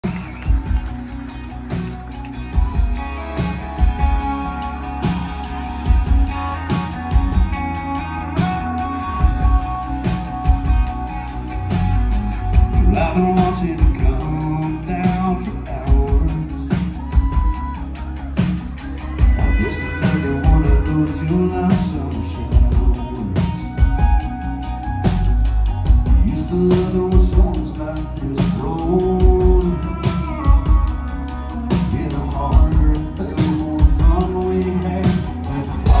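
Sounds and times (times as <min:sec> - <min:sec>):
live country band: 0:00.0 - 0:36.0
man singing: 0:12.5 - 0:17.8, 0:19.1 - 0:24.4, 0:26.0 - 0:36.0.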